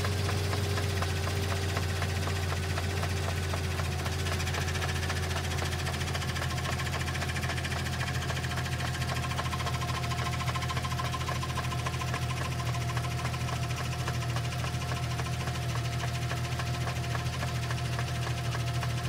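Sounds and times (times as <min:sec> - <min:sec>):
car transmission drone: 0:00.0 - 0:19.0
fast ticking rattle: 0:00.0 - 0:19.0.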